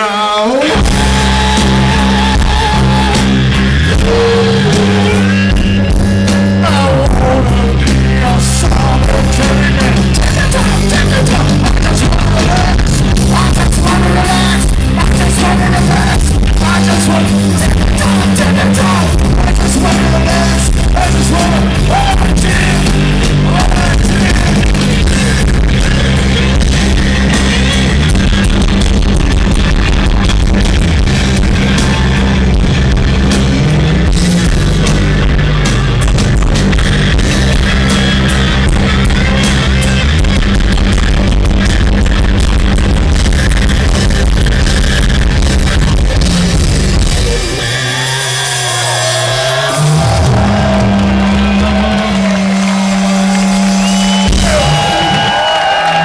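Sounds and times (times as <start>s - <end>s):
person singing: 0.0s - 5.5s, 6.3s - 26.1s
drums: 0.0s - 56.0s
electric guitar: 0.0s - 56.0s.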